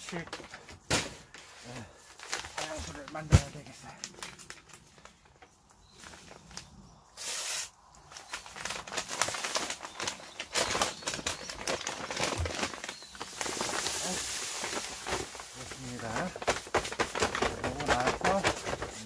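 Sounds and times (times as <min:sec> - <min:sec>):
paper sack crinkling and rustling: 0:00.0 - 0:07.4, 0:08.0 - 0:19.0
short hissing rush: 0:07.2 - 0:07.8.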